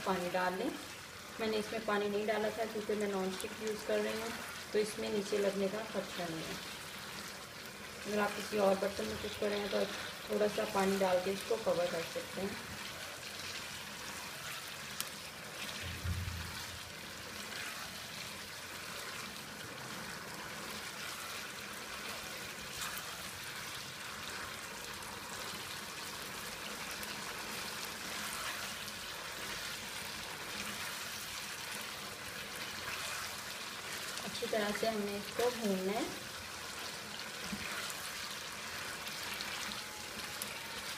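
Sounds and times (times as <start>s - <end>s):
food sizzling in oil: 0.0s - 40.9s
spatula stirring: 12.8s - 19.4s, 26.5s - 35.6s, 36.3s - 40.9s
brief low bump: 15.8s - 16.6s.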